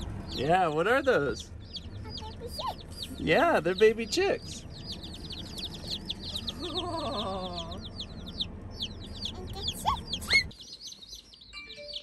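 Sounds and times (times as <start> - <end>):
chicks peeping: 0.0 - 12.0
toddler voice: 2.0 - 3.1, 9.2 - 10.5.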